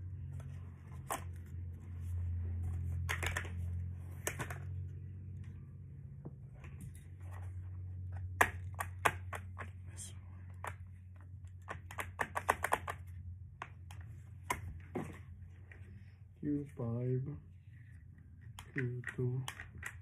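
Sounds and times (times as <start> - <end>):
plastic toy pieces clicking: 11.6 - 13.0, 18.6 - 20.0.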